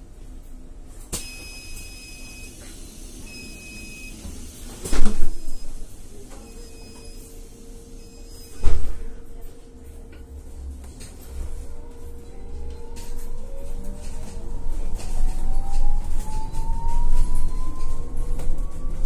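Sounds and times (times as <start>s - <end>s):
bus door mechanism clunks: 4.7s - 5.8s, 8.5s - 9.2s
high warning tone beeping: 5.0s - 9.1s.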